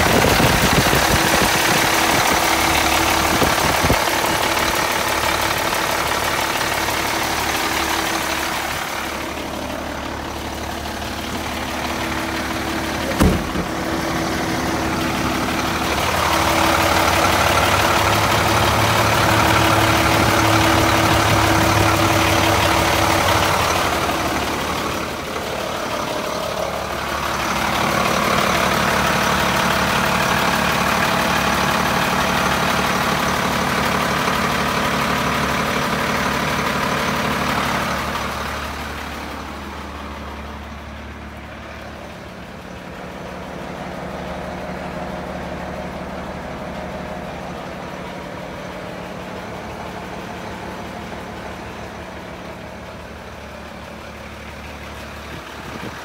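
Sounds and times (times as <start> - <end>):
diesel engine idling: 0.0 - 56.0
sharp knock: 13.2 - 13.8.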